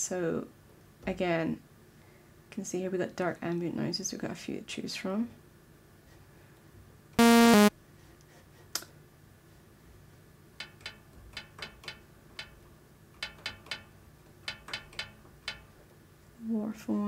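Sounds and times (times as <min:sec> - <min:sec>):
buzzy synth note: 0:07.2 - 0:07.7.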